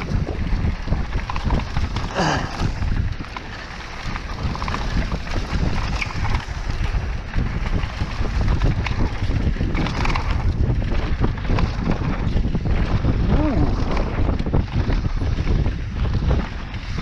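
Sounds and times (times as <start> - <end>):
mountain bike rattling over rough trail: 0.0 - 17.0
wind buffeting microphone: 0.0 - 17.0.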